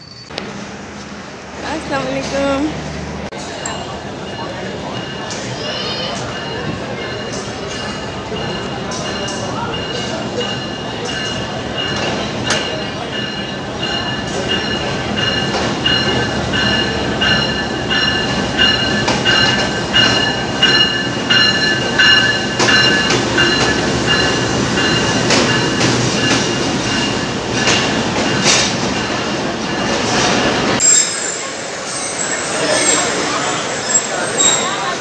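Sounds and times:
train wheels rumbling on rails: 0:00.0 - 0:35.0.

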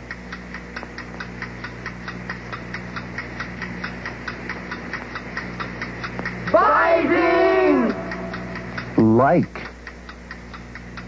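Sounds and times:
fast clock ticking: 0:00.0 - 0:11.0
low drone: 0:06.4 - 0:09.0.

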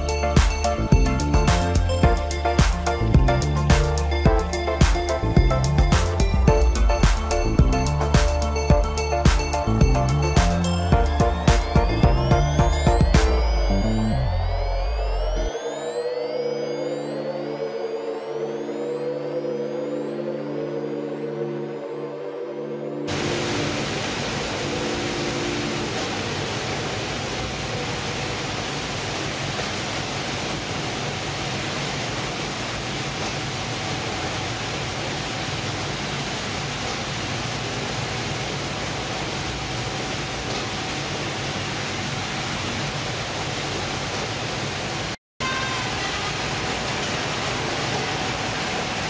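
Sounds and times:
water running from hoses: 0:00.0 - 0:15.4, 0:23.1 - 0:49.0
conveyors and processing machinery: 0:23.1 - 0:49.0.

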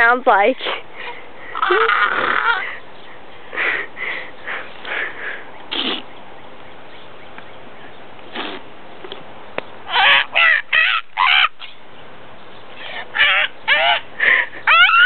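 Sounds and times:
person making raspy screeches: 0:01.5 - 0:02.7.

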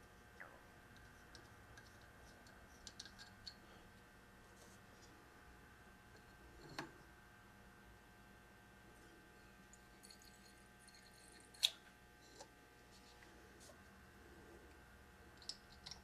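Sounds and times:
small metal clicks: 0:01.0 - 0:03.6, 0:15.4 - 0:16.0.

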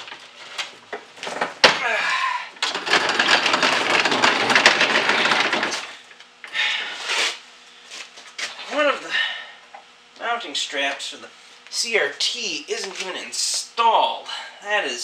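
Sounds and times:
wood scraping and rattling: 0:00.0 - 0:01.8, 0:02.6 - 0:06.0.

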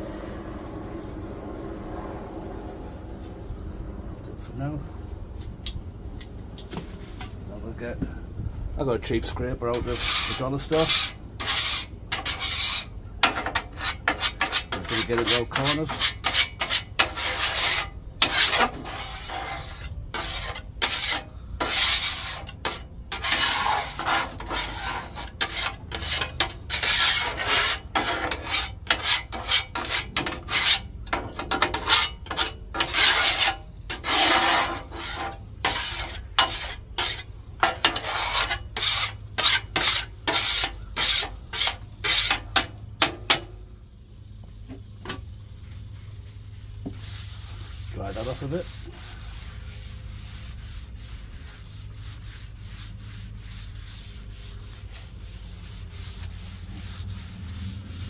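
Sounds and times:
metal scraper scraping steel griddle: 0:09.2 - 0:43.6, 0:46.9 - 0:58.0.

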